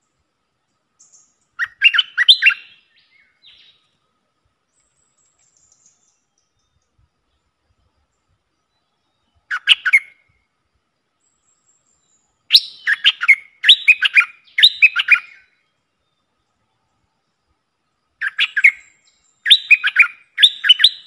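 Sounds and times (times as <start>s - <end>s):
bird singing bubbling phrases: 1.0s - 3.8s, 8.6s - 10.2s, 12.0s - 15.4s, 18.2s - 21.0s.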